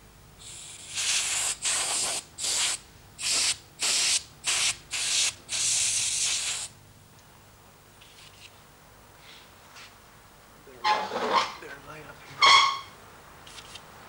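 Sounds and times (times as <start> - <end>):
airbrush spraying hiss: 0.4 - 6.7.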